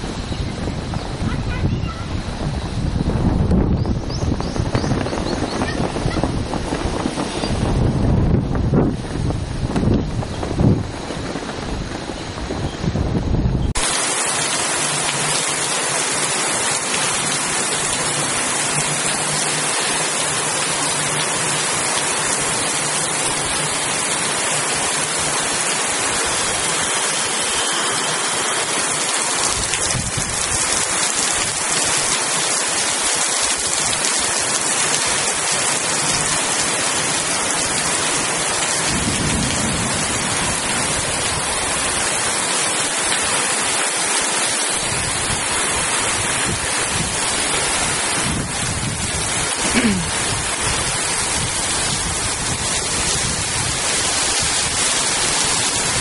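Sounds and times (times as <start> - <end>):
heavy rain pouring on trees: 0.0 - 56.0.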